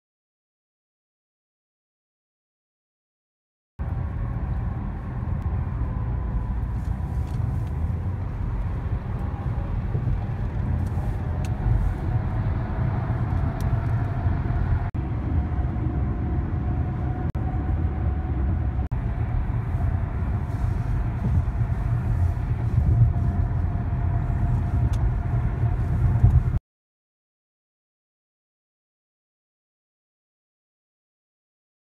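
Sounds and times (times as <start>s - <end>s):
car road and engine rumble: 3.8s - 26.6s.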